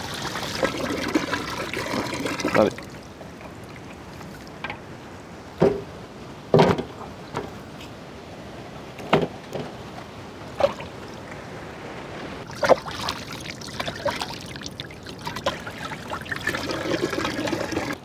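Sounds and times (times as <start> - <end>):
water trickling and splashing: 0.0 - 5.6, 9.6 - 18.0.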